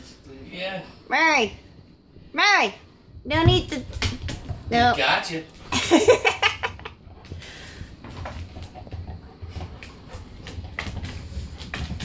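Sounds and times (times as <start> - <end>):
bowling ball rolling on floor: 3.3 - 12.0
dog claws clicking on floor: 3.4 - 5.9, 6.8 - 12.0.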